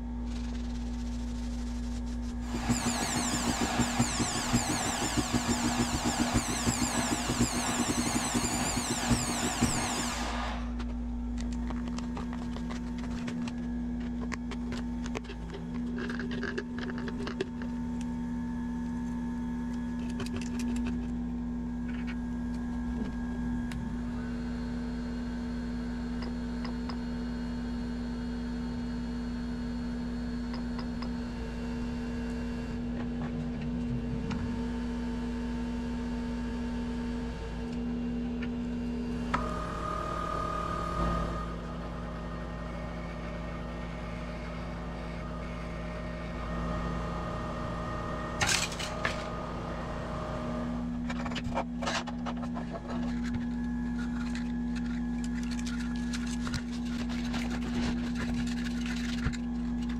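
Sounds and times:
machine hum: 0:00.0 - 0:59.9
electric drill spinning: 0:02.4 - 0:10.9
steady tones: 0:02.5 - 0:10.8.

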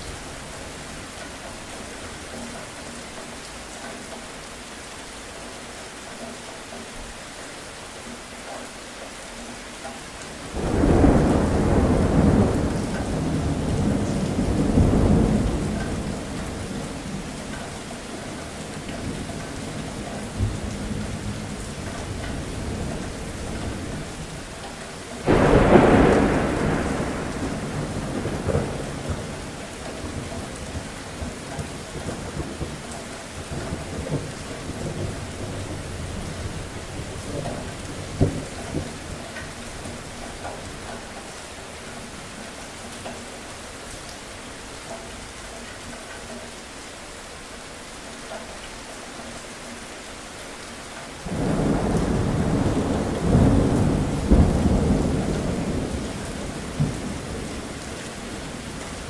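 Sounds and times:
heavy rain: 0:00.0 - 0:59.0
thunder rumbling: 0:10.5 - 0:17.3, 0:25.2 - 0:40.9, 0:51.2 - 0:59.0
thunder clap: 0:10.6 - 0:16.6, 0:25.2 - 0:31.4, 0:51.3 - 0:57.4.

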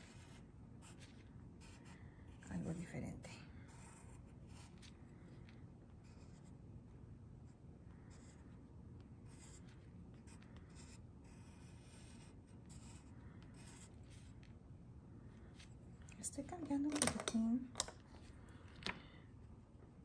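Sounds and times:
pencil scratching on paper: 0:00.0 - 0:06.6, 0:07.4 - 0:08.6, 0:09.2 - 0:14.5.

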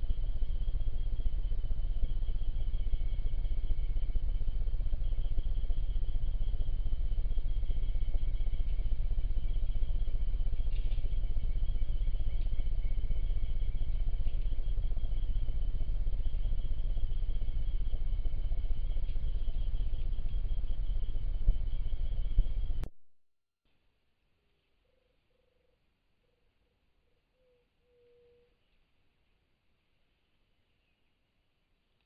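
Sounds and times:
night insects chirring: 0:00.0 - 0:22.8, 0:27.3 - 0:29.2
low rumble: 0:00.0 - 0:22.9.

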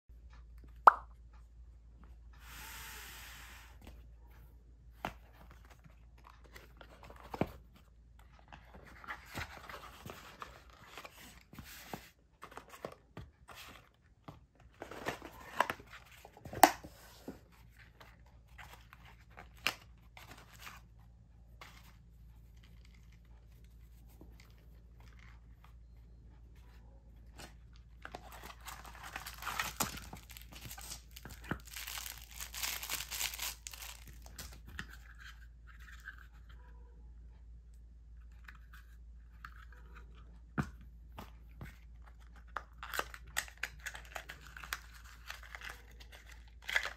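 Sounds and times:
plastic wrapping crinkling: 0:28.2 - 0:34.6.

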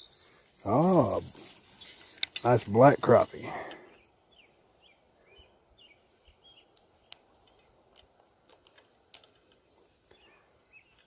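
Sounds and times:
faint bird chirps: 0:00.0 - 0:02.3, 0:09.9 - 0:11.0
sharp handling clicks: 0:02.1 - 0:02.6.

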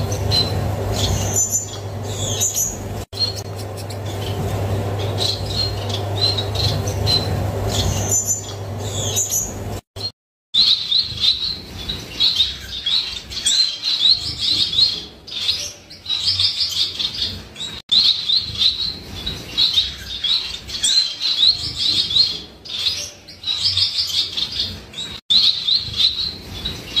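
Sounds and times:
steady low hum: 0:00.0 - 0:09.8
finch chirping song: 0:00.0 - 0:27.0.

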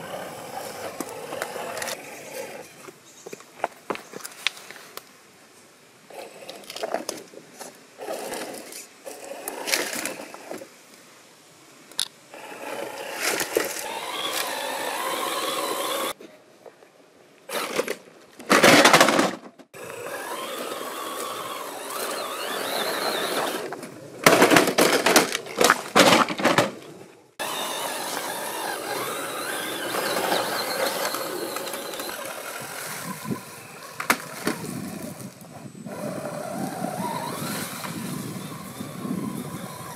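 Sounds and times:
electric motor whining: 0:00.0 - 0:02.7, 0:12.4 - 0:16.2, 0:19.8 - 0:23.8, 0:27.4 - 0:39.9
tyres scraping over rock: 0:00.1 - 0:04.8, 0:06.1 - 0:10.7, 0:12.5 - 0:16.2, 0:27.4 - 0:39.9.

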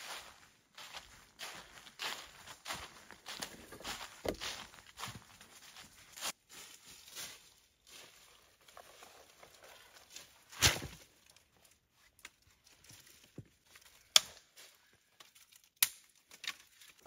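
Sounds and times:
sticks snapping: 0:14.1 - 0:14.4, 0:15.3 - 0:16.7
rustling and clicking wood: 0:15.2 - 0:17.0.

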